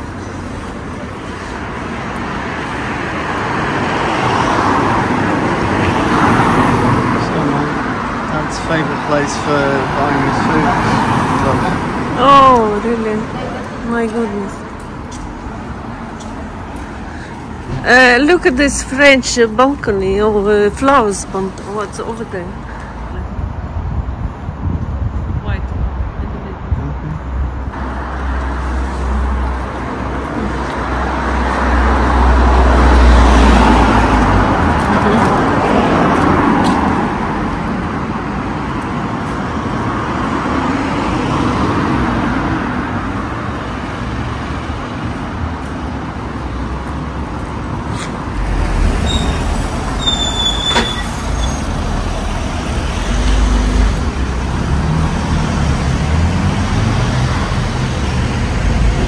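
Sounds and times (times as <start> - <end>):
vehicles passing: 0.0 - 59.0
brief high squeak: 49.0 - 51.8.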